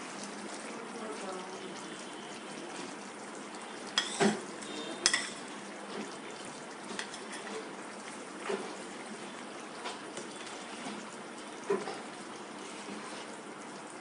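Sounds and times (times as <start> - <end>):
curry bubbling in a pot: 0.0 - 14.0
metal ladle knocking a pot: 5.0 - 5.4.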